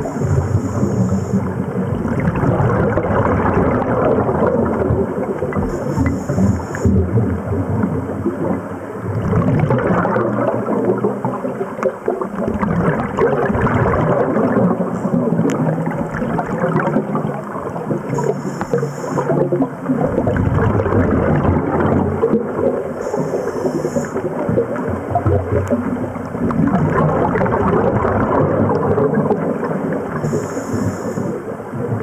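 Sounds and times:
regulator hisses: 0.0s - 1.5s, 5.7s - 7.0s, 18.1s - 19.3s, 23.0s - 24.2s, 30.2s - 31.4s
diver breathing bubbles underwater: 0.0s - 32.0s.

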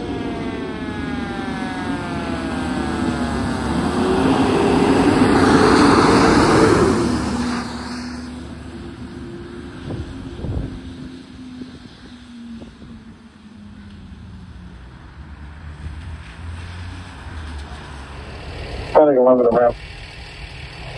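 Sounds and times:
steady low drone: 0.0s - 15.4s
fire engine siren: 0.0s - 20.1s
engine and tyres on wet road: 0.0s - 20.9s.

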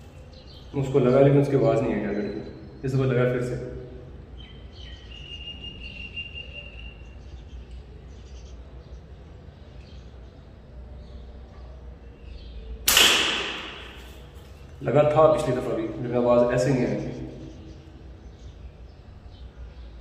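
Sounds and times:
slingshot rubber band snap: 12.9s - 14.1s
shot striking target: 12.9s - 14.3s.

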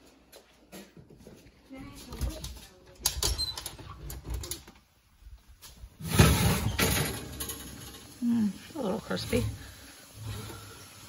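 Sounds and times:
oven door pulled open: 6.0s - 7.7s.

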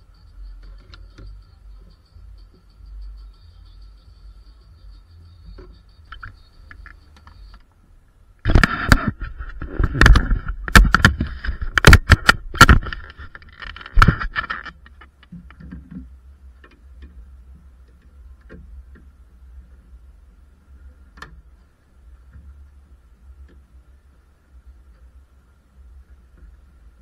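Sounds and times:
camera handling knocks and rattles: 8.5s - 16.0s.

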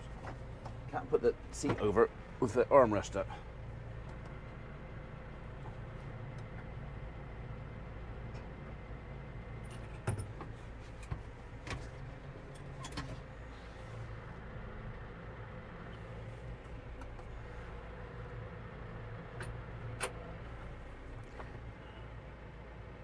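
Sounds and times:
tractor engine idling: 0.0s - 22.6s
cab controls clicking and knocking: 1.5s - 2.1s, 9.7s - 13.3s, 19.3s - 20.3s.

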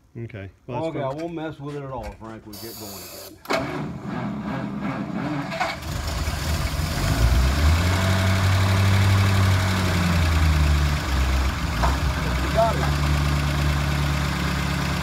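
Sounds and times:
car engine cranking and running: 3.5s - 15.0s.

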